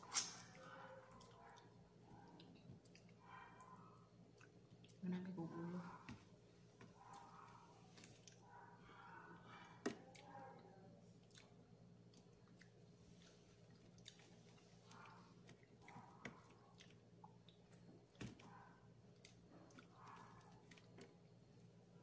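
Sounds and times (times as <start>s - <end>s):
close-mic chewing: 0.0s - 22.0s
low steady hum: 0.0s - 22.0s
wet mouth smacks: 0.1s - 0.6s.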